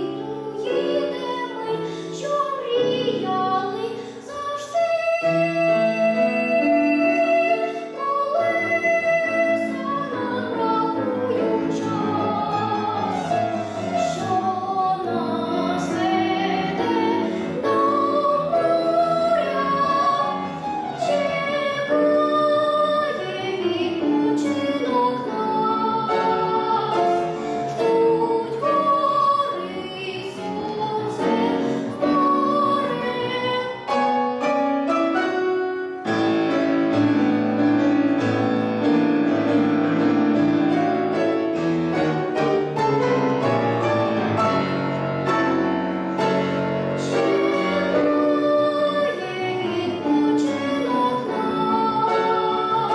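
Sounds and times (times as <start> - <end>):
girl singing: 0.0 - 34.2, 47.0 - 52.9
grand piano: 0.0 - 52.9.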